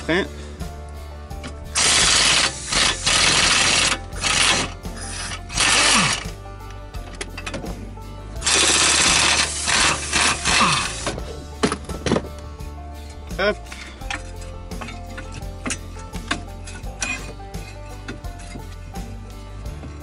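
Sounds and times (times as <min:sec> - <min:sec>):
impact wrench bursts: 0:01.7 - 0:06.3, 0:08.4 - 0:11.2.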